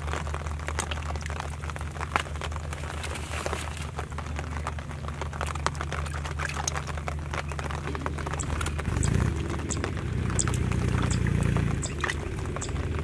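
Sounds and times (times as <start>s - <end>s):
low hum: 3.7s - 13.0s.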